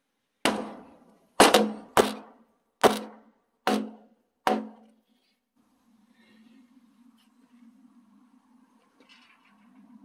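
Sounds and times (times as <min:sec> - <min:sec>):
wooden mallet pounding logs: 0:00.4 - 0:05.0.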